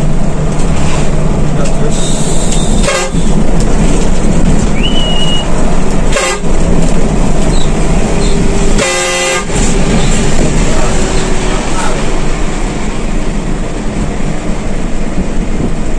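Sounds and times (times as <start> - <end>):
bus engine and road noise: 0.0 - 15.9
bus horn: 1.9 - 3.4, 4.8 - 6.7, 7.6 - 11.3.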